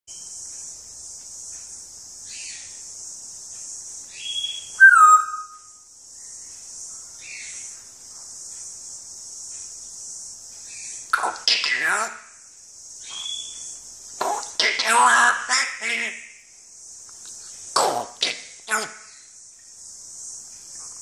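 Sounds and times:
steady high hiss: 0:00.1 - 0:21.0
parrot whistling: 0:04.3 - 0:05.8
soft rough parrot calls: 0:17.8 - 0:19.2.

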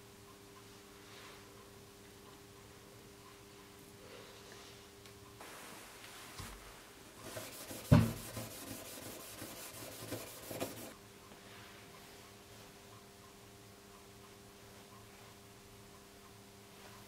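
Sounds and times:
brass plate rubbing on mat: 0:07.2 - 0:10.9
sharp knock: 0:07.8 - 0:08.2.

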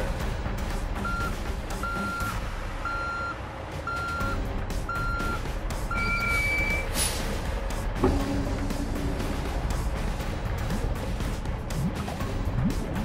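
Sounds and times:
truck engine running: 0:00.0 - 0:13.0
high steady tone: 0:01.0 - 0:06.9
truck reversing alarm beeping: 0:01.0 - 0:07.0
short hiss: 0:06.9 - 0:07.4.

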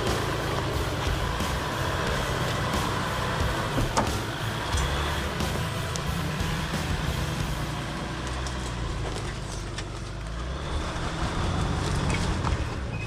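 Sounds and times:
engine running low: 0:00.0 - 0:13.0
clicks and cracks under tires: 0:08.1 - 0:10.5, 0:11.5 - 0:12.9.

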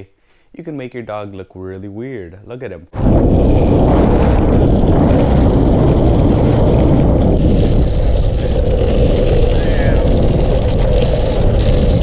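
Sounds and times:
wind buffeting microphone: 0:03.0 - 0:12.0
skateboard wheels rolling on asphalt: 0:03.1 - 0:12.0.

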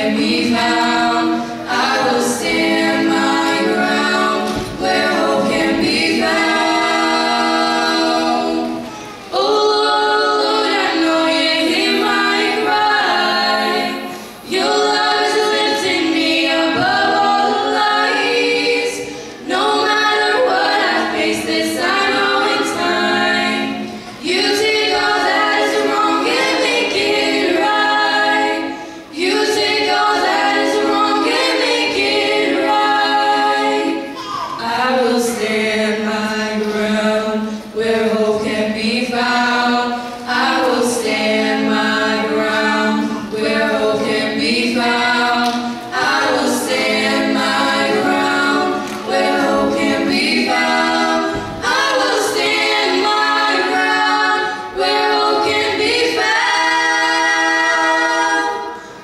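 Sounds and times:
women singing in harmony: 0:00.0 - 0:59.0.

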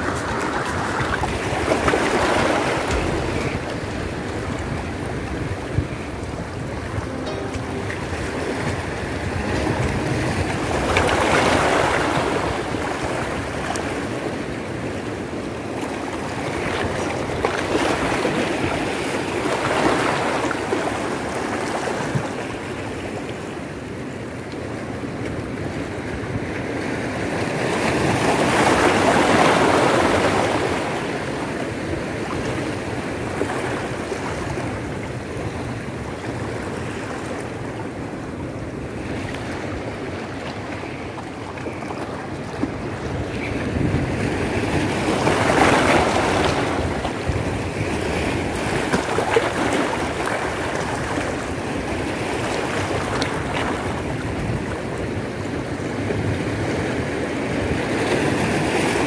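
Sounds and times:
sea waves washing over rocks: 0:00.0 - 0:59.0.

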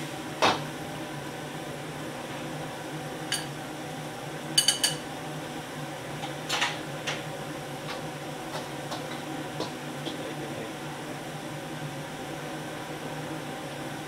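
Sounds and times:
wok range hum: 0:00.0 - 0:14.0
utensils clinking against bowl: 0:03.3 - 0:03.5, 0:04.6 - 0:05.0.

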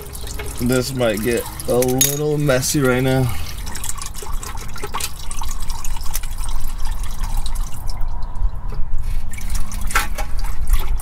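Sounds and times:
fluid dripping into plastic bucket: 0:00.0 - 0:08.5.

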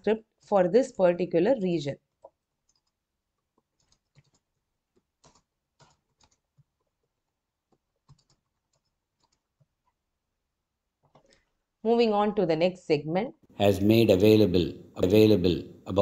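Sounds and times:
keyboard typing: 0:02.2 - 0:10.0, 0:11.0 - 0:11.5.

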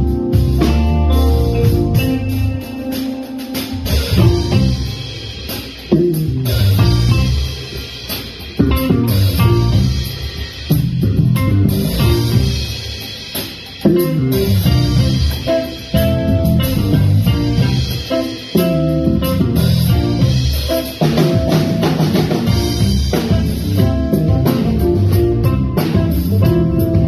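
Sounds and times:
rock band playing: 0:00.0 - 0:27.0.

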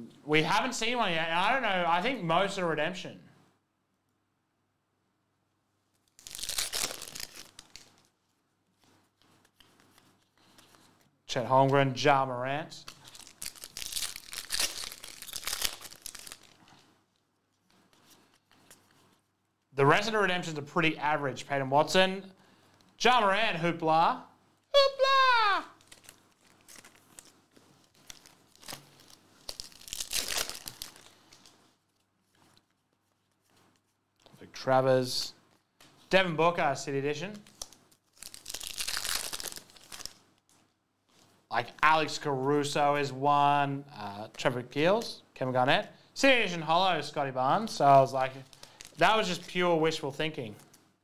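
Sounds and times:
foil wrapper tearing: 0:06.0 - 0:08.1, 0:12.9 - 0:16.9, 0:25.1 - 0:31.6, 0:37.4 - 0:40.5, 0:48.3 - 0:49.5
cards rustling: 0:06.0 - 0:11.1, 0:12.8 - 0:19.3, 0:25.7 - 0:34.4, 0:37.4 - 0:41.3, 0:48.2 - 0:49.6.

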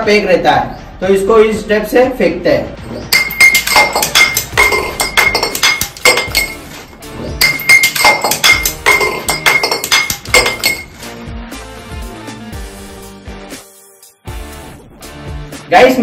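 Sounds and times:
glass bottle clattering down stairs: 0:03.1 - 0:11.0.

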